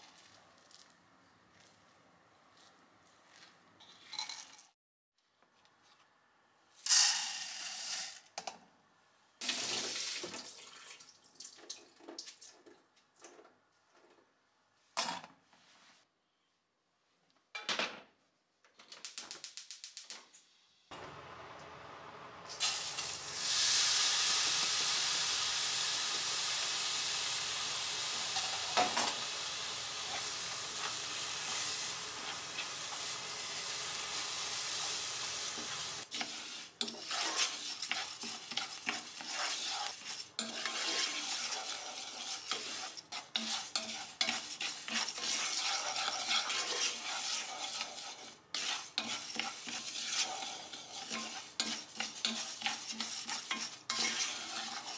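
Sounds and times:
dry rice poured into strainer: 6.8 - 8.2
rice sizzling in hot pot: 6.8 - 8.2, 9.4 - 10.7, 20.9 - 54.9
wooden spoon stirring: 30.0 - 33.2, 34.8 - 54.9.

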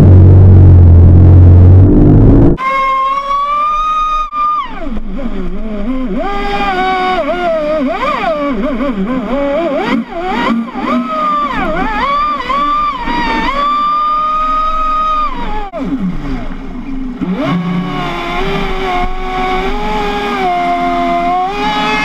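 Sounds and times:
electric motor whining: 0.0 - 16.1, 17.2 - 22.0.

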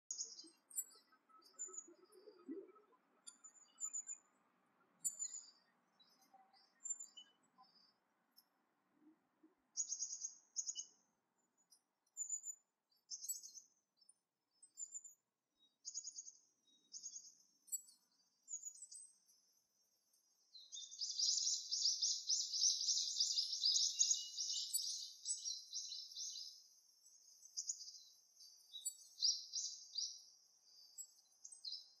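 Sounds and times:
songbirds chirping: 0.0 - 32.0
rapid bird twittering: 20.8 - 26.5.

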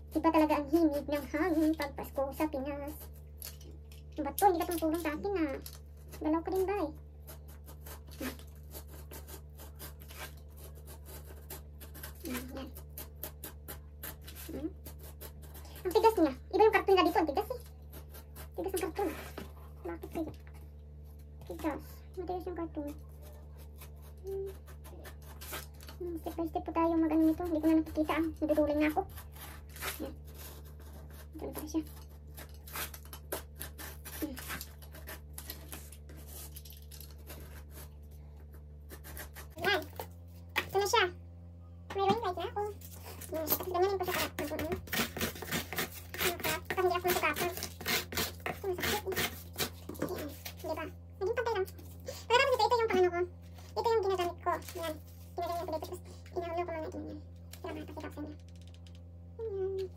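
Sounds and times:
knife cutting cardboard: 4.5 - 20.4, 22.9 - 40.9, 42.1 - 56.0.

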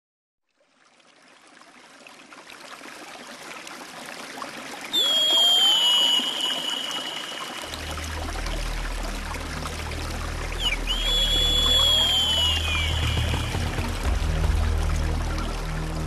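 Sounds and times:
running water rushing: 0.6 - 16.0
high whistled note: 5.0 - 8.3, 10.6 - 13.9.

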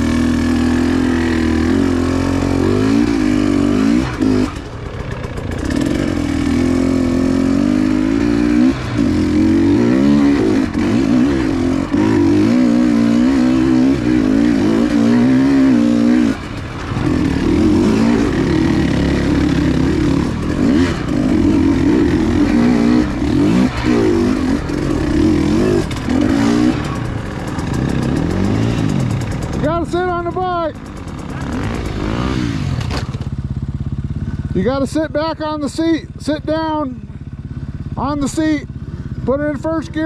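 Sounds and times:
dirt bike engine revving: 0.0 - 40.0.

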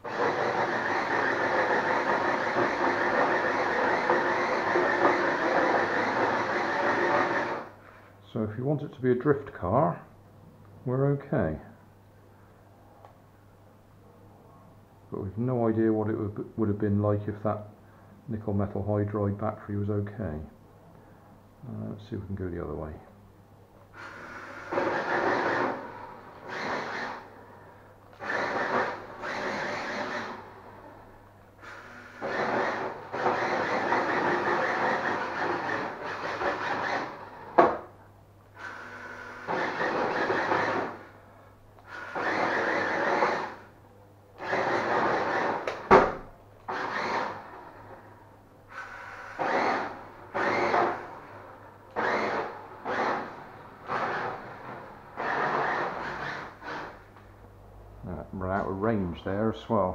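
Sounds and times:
tyres skidding on wooden floor: 0.0 - 7.7
toy car motor whirring: 31.6 - 37.2, 41.8 - 43.6, 46.7 - 47.4.

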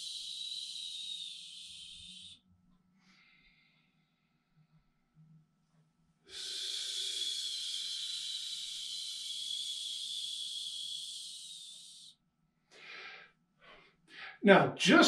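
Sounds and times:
man hissing exhale: 0.0 - 2.3, 6.3 - 12.1, 12.7 - 14.4.

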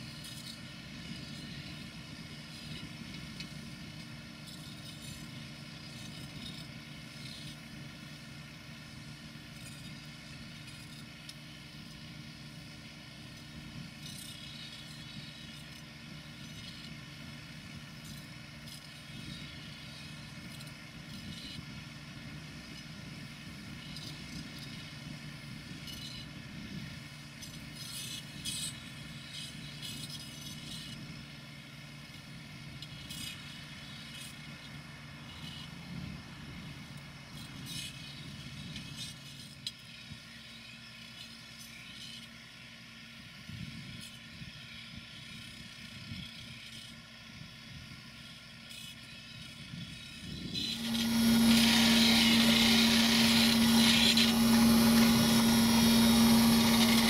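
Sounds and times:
distant tractor running: 0.0 - 57.0
grinding wheel against knives: 13.3 - 17.1, 23.7 - 31.2, 32.0 - 42.6, 43.4 - 57.0.

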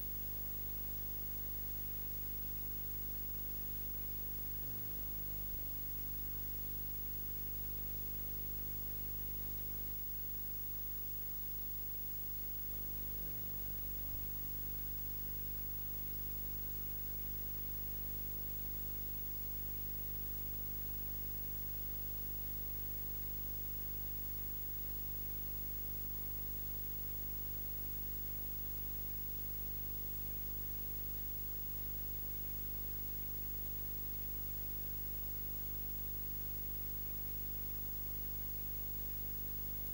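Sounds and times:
constant hiss: 12.9 - 14.7.

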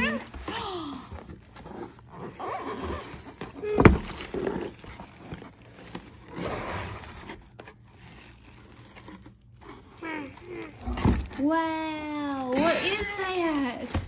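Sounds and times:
cardboard rustling and scraping: 0.0 - 14.0.

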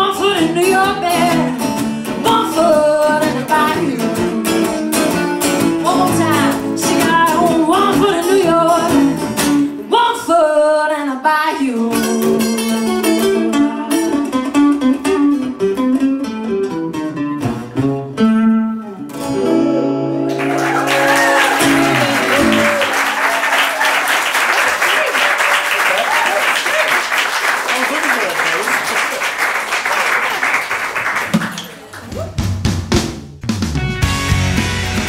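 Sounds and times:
woman singing: 0.0 - 4.8, 5.8 - 13.8
acoustic guitars: 0.0 - 23.2
audience applause: 20.3 - 32.2.

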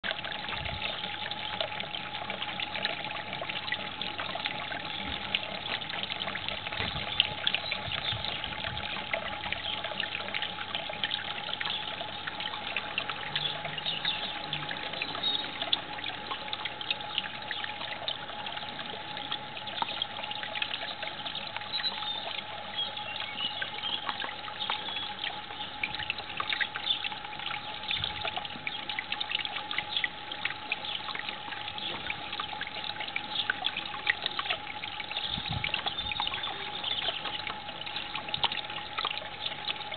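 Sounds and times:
thin steady hum: 0.0 - 39.9
water trickling and splashing: 0.0 - 39.9.

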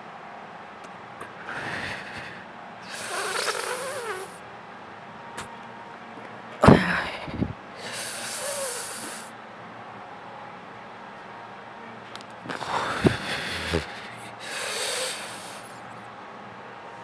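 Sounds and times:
person breathing out hard: 1.4 - 3.6, 12.5 - 15.8.

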